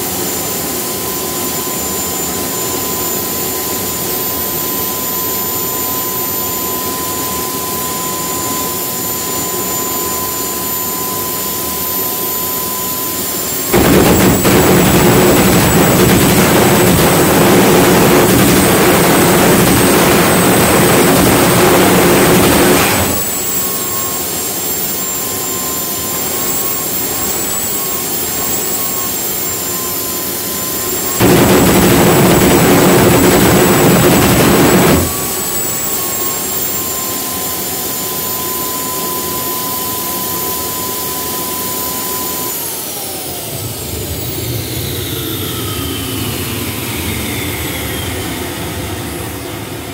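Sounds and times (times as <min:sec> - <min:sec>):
jet engine whining: 0:00.0 - 0:49.9
afterburner roaring: 0:13.7 - 0:23.6, 0:31.2 - 0:36.0, 0:43.4 - 0:49.8.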